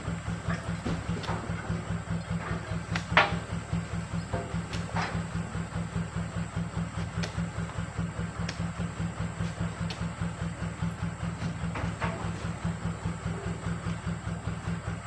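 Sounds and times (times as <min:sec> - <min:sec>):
truck engine idling: 0:00.0 - 0:15.0
sharp knocks: 0:02.4 - 0:03.5.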